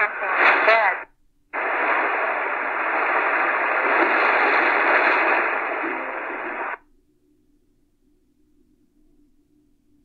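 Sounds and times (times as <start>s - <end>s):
radio static hiss: 0.0s - 6.8s.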